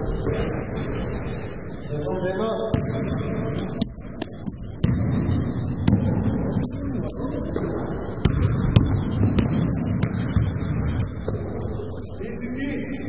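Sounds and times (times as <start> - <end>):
sneaker squeaks: 0.0 - 1.4, 2.7 - 5.9, 6.6 - 12.6
basketball bouncing on court: 2.7 - 12.1.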